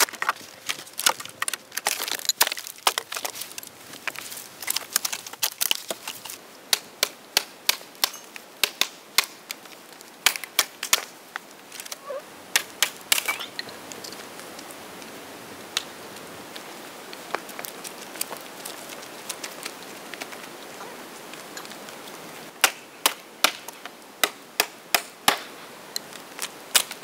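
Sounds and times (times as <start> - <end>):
dead branches knocking and cracking: 0.0 - 13.5
steady soft hiss: 3.2 - 27.0.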